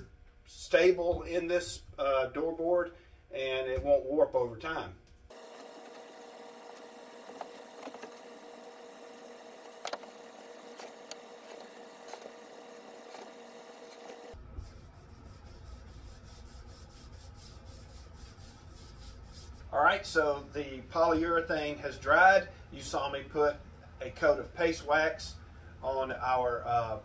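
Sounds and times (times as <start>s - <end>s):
faint steady hum: 4.8s - 27.0s
hand rubbing wax onto wood: 9.9s - 19.7s.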